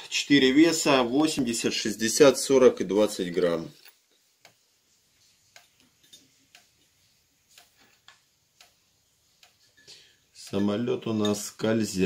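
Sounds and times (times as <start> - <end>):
small clicks and taps: 7.5 - 8.8.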